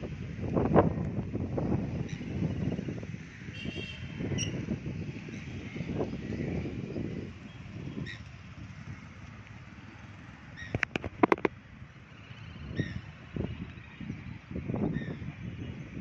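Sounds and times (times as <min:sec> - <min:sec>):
wind rumble on microphone: 0:00.0 - 0:16.0
sharp cracks: 0:10.7 - 0:11.6.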